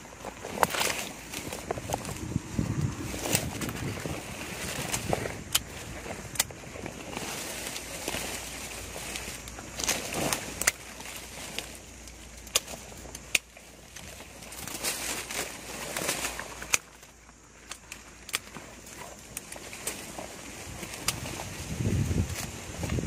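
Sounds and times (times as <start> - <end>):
plastic suit rustling against leaves: 0.0 - 23.0
pruning shears snipping: 3.0 - 21.5.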